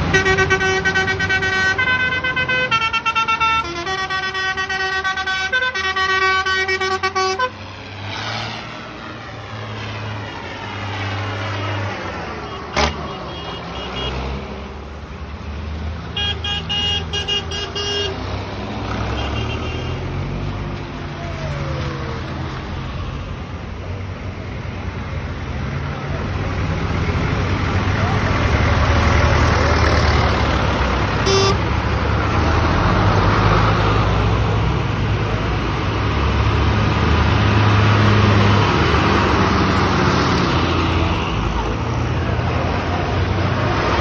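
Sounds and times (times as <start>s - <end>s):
tractor engines droning: 0.0s - 44.0s
vehicle horn held notes: 31.2s - 31.6s.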